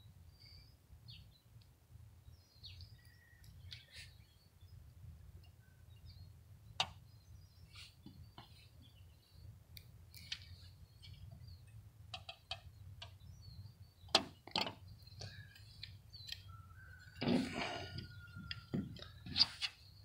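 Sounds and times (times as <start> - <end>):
metal table clicks and taps: 12.1 - 13.2.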